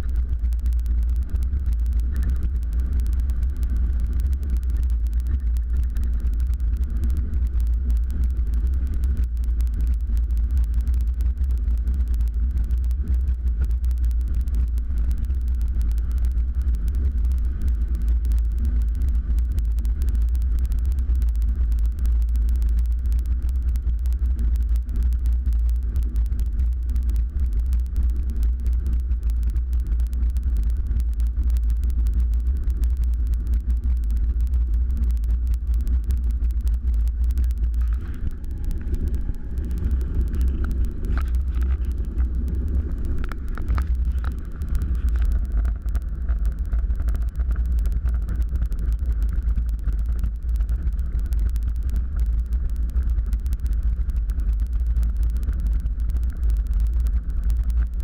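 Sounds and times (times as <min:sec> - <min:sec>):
piston aircraft engine rumble: 0:36.1 - 0:49.0.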